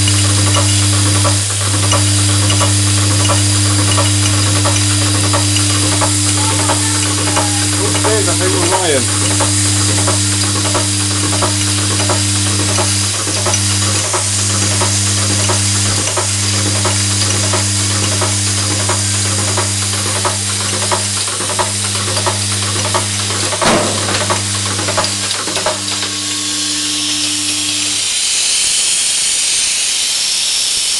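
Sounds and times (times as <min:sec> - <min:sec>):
electromagnetic hum: 0:00.0 - 0:28.2
short clatter: 0:23.6 - 0:24.5.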